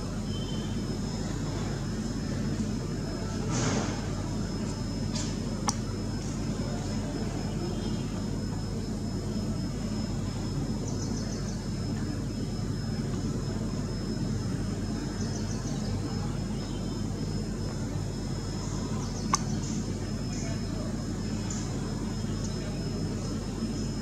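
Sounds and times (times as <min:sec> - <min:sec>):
thin high whine: 0:00.0 - 0:24.0.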